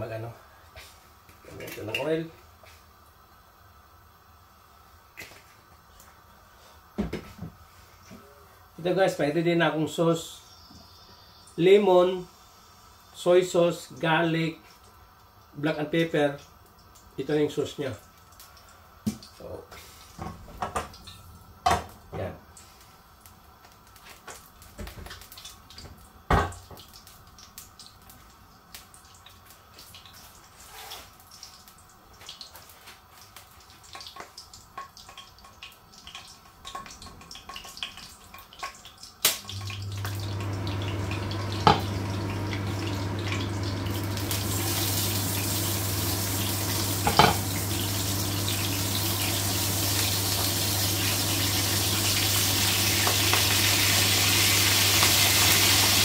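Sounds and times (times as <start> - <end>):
meat sizzling in oil: 16.4 - 56.0.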